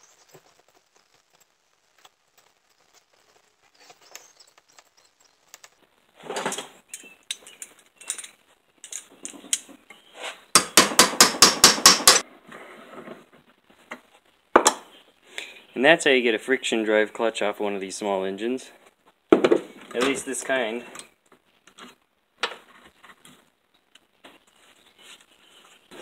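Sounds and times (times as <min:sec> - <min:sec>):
metal tools clinking: 0:06.9 - 0:09.6
sharp metal strikes: 0:10.6 - 0:12.2.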